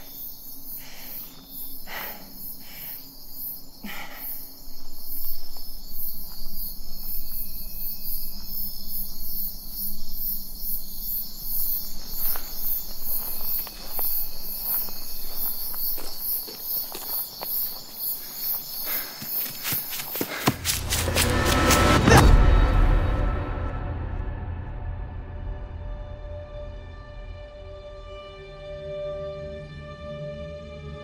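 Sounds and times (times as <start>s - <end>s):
footsteps on dirt trail: 0.0s - 22.0s
insects chirping: 0.0s - 22.0s.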